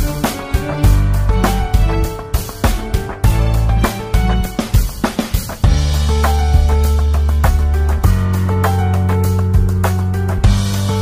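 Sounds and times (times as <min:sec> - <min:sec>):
sharp percussive hits: 0:00.0 - 0:08.8.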